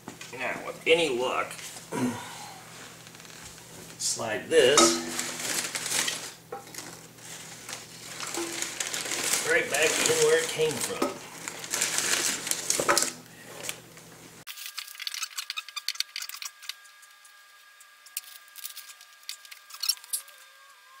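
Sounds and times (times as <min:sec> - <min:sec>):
metal parts scraping: 0:14.5 - 0:17.0, 0:18.1 - 0:20.4.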